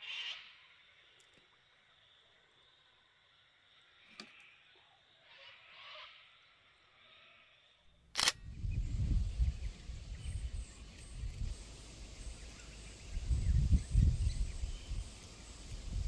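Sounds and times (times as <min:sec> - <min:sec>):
sharp click: 0:08.2 - 0:08.4
wind buffeting microphone: 0:08.3 - 0:16.0.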